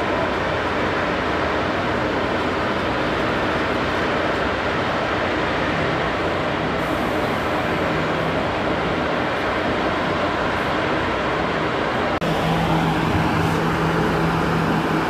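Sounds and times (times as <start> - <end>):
concrete pump running: 11.9 - 15.0.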